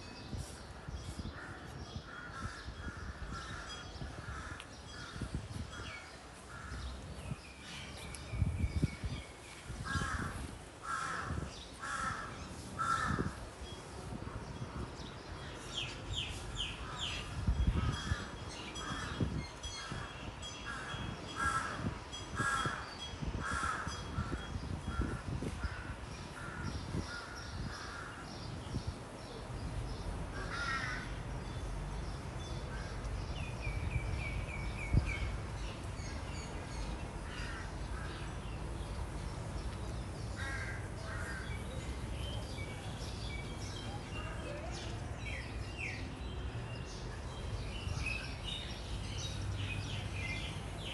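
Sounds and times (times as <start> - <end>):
crows cawing: 9.9 - 13.4, 30.4 - 31.2, 37.2 - 38.3, 40.4 - 41.5.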